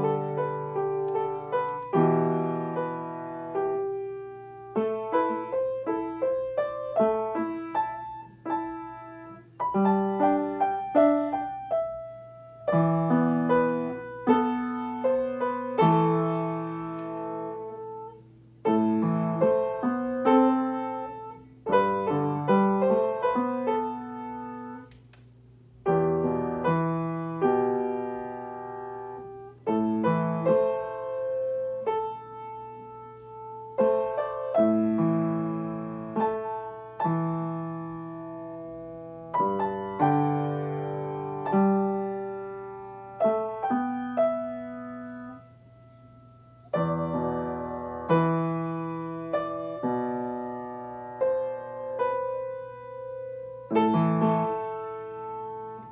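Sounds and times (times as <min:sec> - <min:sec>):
slow solo piano: 0:00.0 - 0:25.0, 0:25.8 - 0:55.9.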